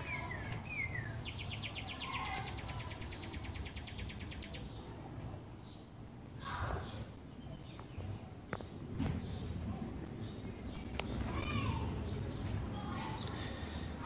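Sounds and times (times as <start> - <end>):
high bird trill: 0.0 - 4.8
bird chirps: 0.0 - 4.9.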